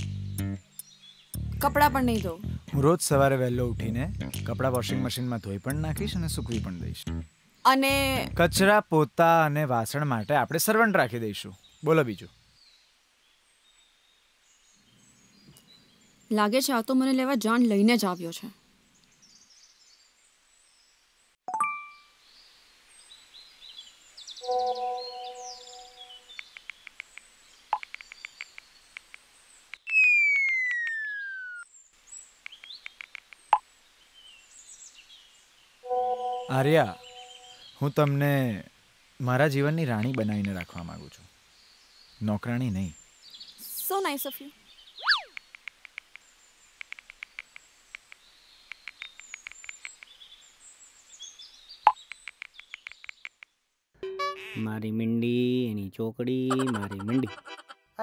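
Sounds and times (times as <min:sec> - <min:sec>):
birds chirping: 0:00.0 - 0:21.0, 0:23.0 - 0:53.6
message pop: 0:04.2 - 0:05.0
downward sliding whistle effect: 0:29.9 - 0:31.6.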